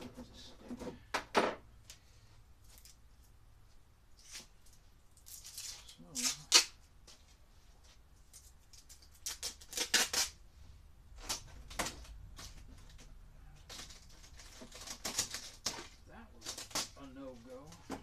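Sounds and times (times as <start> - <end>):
tape crackling and ripping: 2.6 - 3.3, 4.2 - 6.9, 8.2 - 10.4, 11.2 - 17.8.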